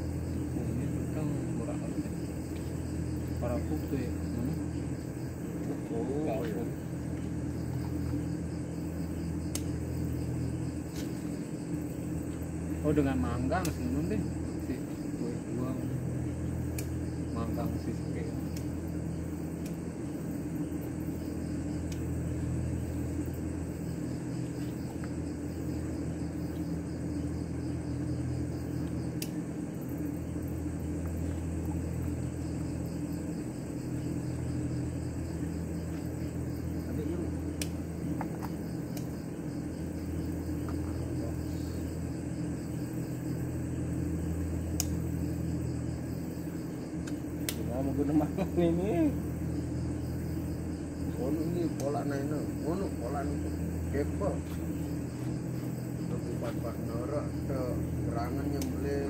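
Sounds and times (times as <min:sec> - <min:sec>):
insect chirring: 0:00.0 - 0:59.0
low machine hum: 0:00.0 - 0:59.0
sharp clicks: 0:18.5 - 0:18.7, 0:37.6 - 0:39.2, 0:44.7 - 0:45.0, 0:47.0 - 0:47.7.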